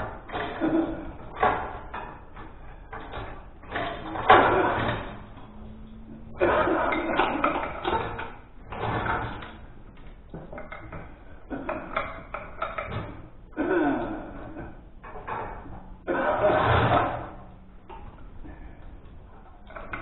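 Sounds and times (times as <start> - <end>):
chain and metal clanking: 0.0 - 13.2.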